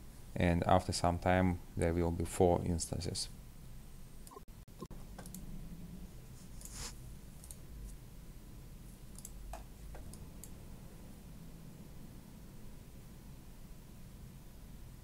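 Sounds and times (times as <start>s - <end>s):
low steady hum: 0.0s - 15.0s
faint clicks: 9.1s - 10.6s.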